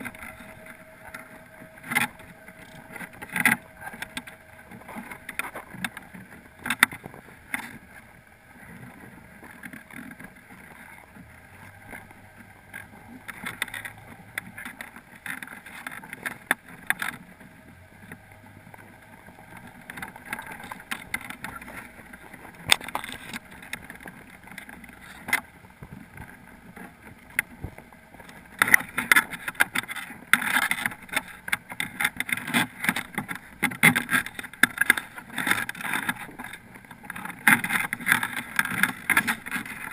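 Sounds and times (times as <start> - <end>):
muffled underwater scraping: 0.0 - 39.9
sharp clicks and knocks: 8.6 - 39.9.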